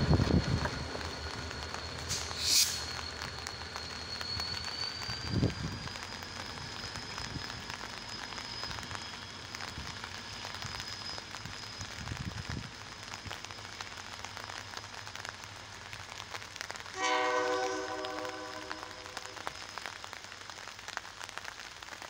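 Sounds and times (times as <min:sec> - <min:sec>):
diesel train rumble: 0:00.0 - 0:20.5
rain pattering: 0:00.0 - 0:22.0
locomotive air horn: 0:16.9 - 0:19.6
thin high whine: 0:17.0 - 0:20.2.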